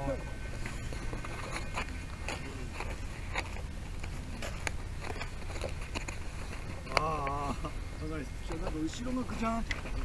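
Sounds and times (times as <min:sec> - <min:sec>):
handling crackles and clicks: 0:00.6 - 0:07.4, 0:09.6 - 0:10.0.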